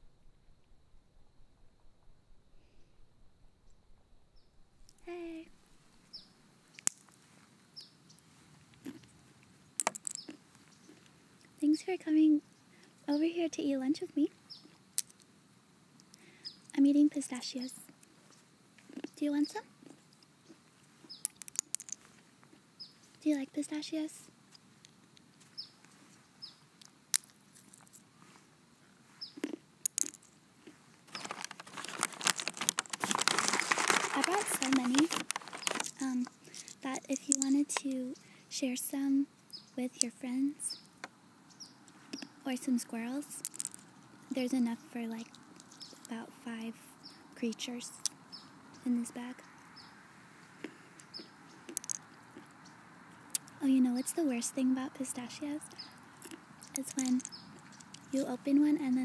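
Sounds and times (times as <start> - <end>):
crunching: 8.2 - 11.1, 19.8 - 22.6, 29.1 - 37.6, 43.4 - 44.3, 50.5 - 52.6, 55.7 - 58.2
pistachio shells cracking: 9.8 - 10.4, 21.1 - 22.1, 29.4 - 37.6, 43.4 - 43.9, 51.7 - 52.5, 55.7 - 58.1
paper bag crinkling: 31.1 - 36.8.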